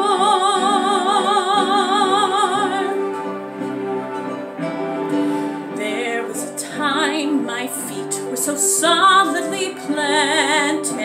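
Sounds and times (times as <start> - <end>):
woman singing: 0.0 - 3.1, 5.8 - 11.0
orchestral backing track: 0.0 - 11.0.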